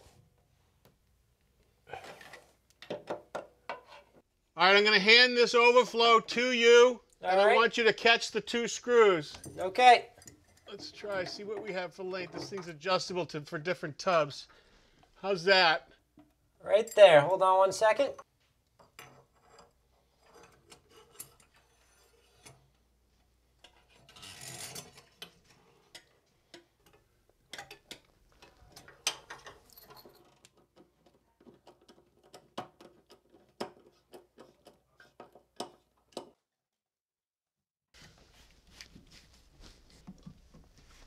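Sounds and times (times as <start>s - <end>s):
drain fittings clicking and scraping: 9.2s - 13.1s, 16.1s - 22.8s, 23.6s - 36.4s.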